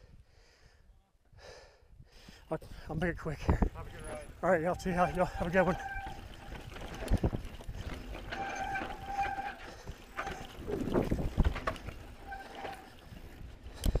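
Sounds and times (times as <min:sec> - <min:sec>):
bike rattling on rocky trail: 0:03.0 - 0:14.0
disc brakes squealing: 0:03.9 - 0:13.2
wheels thumping on rocks: 0:05.4 - 0:14.0.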